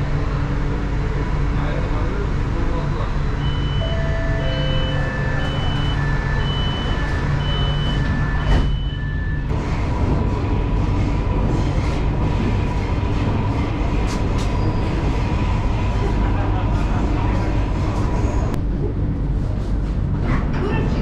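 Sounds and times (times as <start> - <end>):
train running rumble: 0.0 - 21.0
two-tone door warning beep: 3.4 - 9.5.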